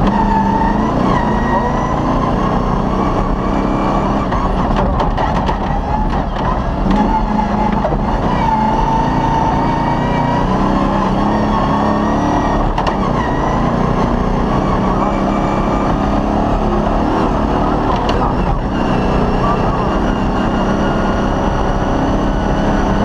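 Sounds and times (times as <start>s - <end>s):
rally car engine running hard: 0.0s - 23.0s
knocks and clatters from rough track: 4.1s - 8.7s, 12.6s - 13.3s, 17.6s - 19.2s.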